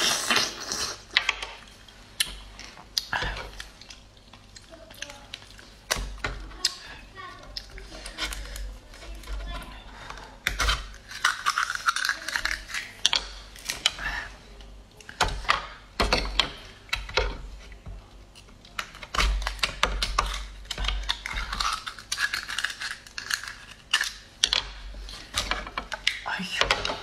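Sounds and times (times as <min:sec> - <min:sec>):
knife shucking oyster shells: 0:10.1 - 0:14.0, 0:18.8 - 0:24.7.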